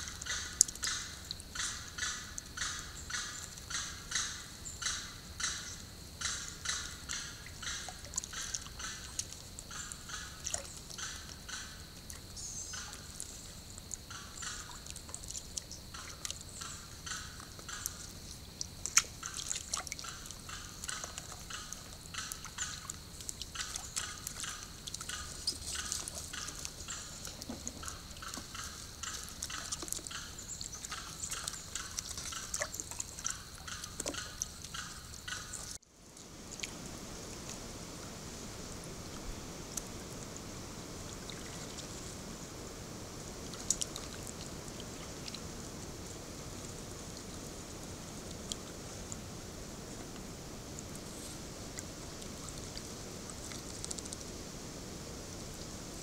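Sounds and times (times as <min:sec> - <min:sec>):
steady high hiss: 0:00.0 - 0:56.0
water dripping and splashing: 0:06.7 - 0:38.2, 0:38.9 - 0:56.0.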